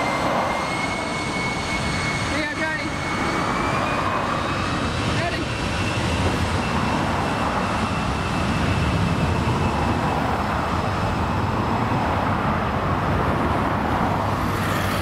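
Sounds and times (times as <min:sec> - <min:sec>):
cars driving past: 0:06.0 - 0:15.0.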